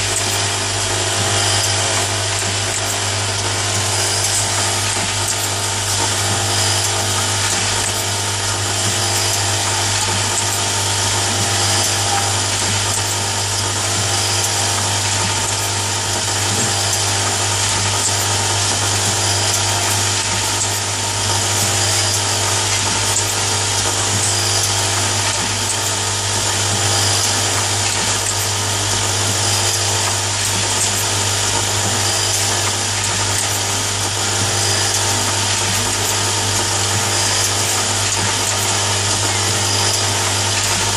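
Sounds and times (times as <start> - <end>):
machine motor humming and whirring: 0.0 - 40.9.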